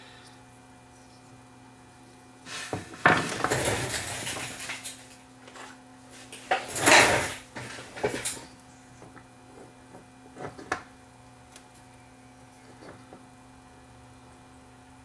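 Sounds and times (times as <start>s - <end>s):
metal tools clattering: 6.5s - 8.4s.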